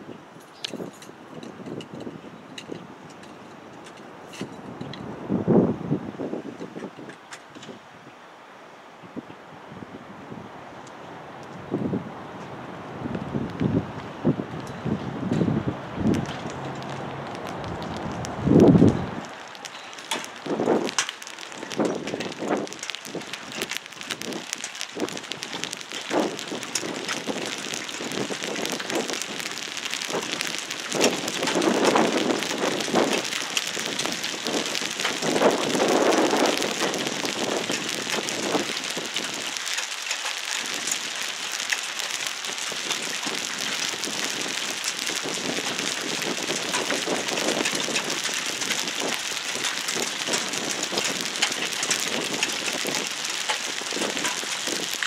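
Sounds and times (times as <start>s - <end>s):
steady rain hissing: 0.0s - 55.0s.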